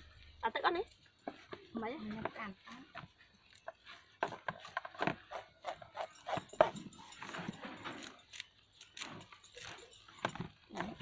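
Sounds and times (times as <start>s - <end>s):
scissors snipping: 7.9s - 9.8s.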